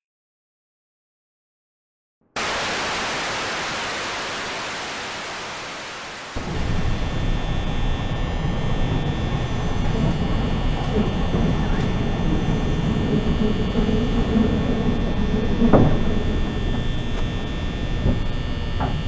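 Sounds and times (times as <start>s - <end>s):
tv static hiss: 2.4s - 8.0s
low rumble with faint hum: 6.4s - 19.0s.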